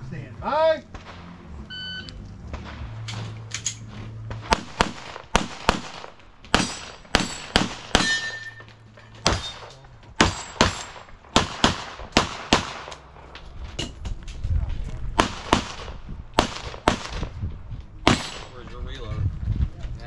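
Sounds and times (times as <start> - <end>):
pistol shots: 4.3 - 8.6, 9.2 - 13.1, 15.2 - 17.3, 18.0 - 18.6.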